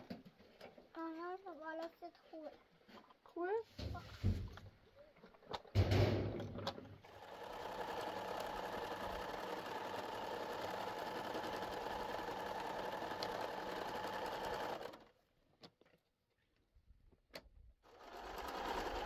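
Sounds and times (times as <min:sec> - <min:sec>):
electric sewing machine stitching: 0:07.0 - 0:15.1, 0:17.9 - 0:19.0.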